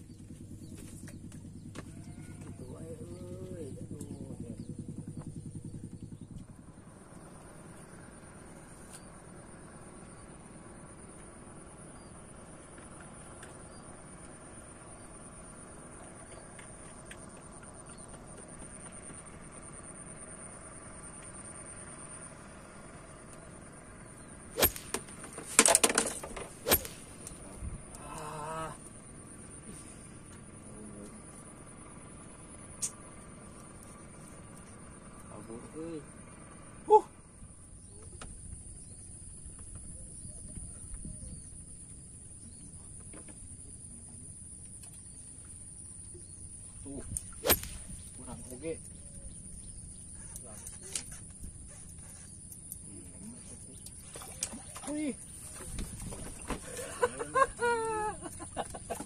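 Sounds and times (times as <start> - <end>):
steady high-pitched whine: 0.0 - 59.0
fishing rod knocking and clattering: 24.8 - 27.0
wind rumble on microphone: 38.4 - 41.6, 55.4 - 56.7.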